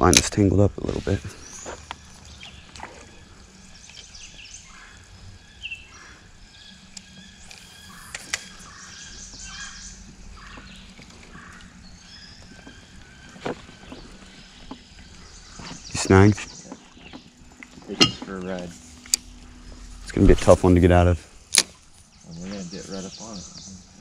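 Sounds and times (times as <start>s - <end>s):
birds calling and singing: 0.0s - 24.0s.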